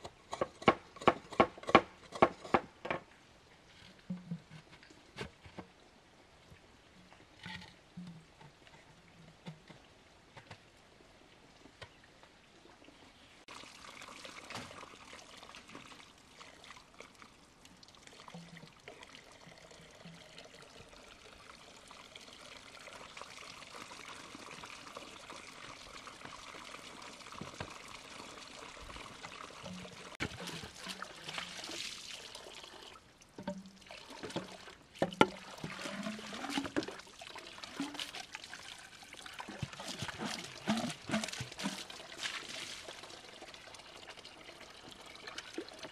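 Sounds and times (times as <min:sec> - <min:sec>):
water pouring: 0:12.8 - 0:45.9.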